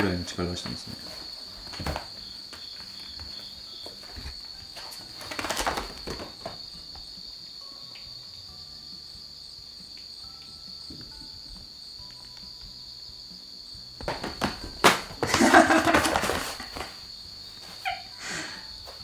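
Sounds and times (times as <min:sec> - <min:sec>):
cats tussling on a mat: 0:00.4 - 0:07.2, 0:14.0 - 0:18.1.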